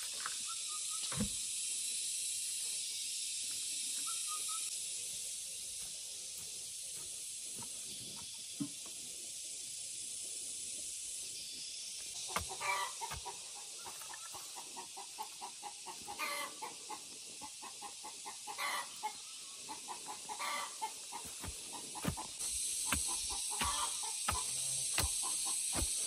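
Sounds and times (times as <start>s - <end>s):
steady high hiss: 0.0s - 26.0s
chickens clucking: 12.2s - 26.0s.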